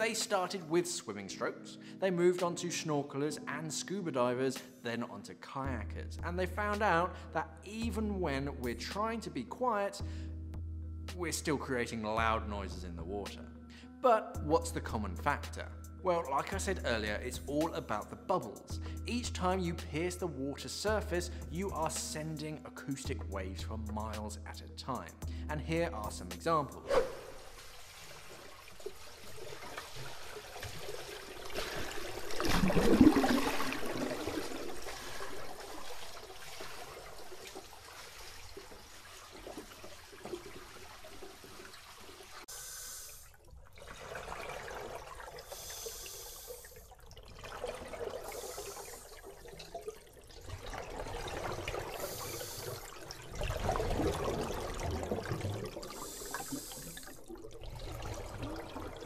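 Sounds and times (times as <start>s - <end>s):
paddle strokes swishing water: 26.9s - 59.0s
exhaled bubbles underwater: 28.4s - 42.4s, 43.2s - 59.0s.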